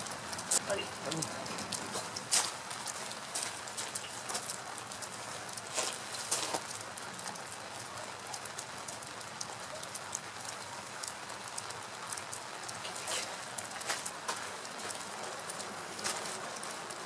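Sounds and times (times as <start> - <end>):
crackling and sharp ticks: 8.3 - 17.0.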